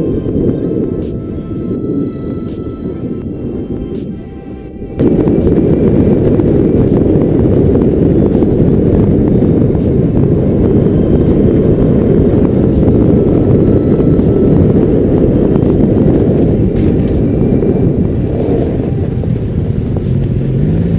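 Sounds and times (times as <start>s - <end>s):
wind rumble on microphone: 0.0s - 20.9s
motorcycle engine: 5.0s - 20.9s.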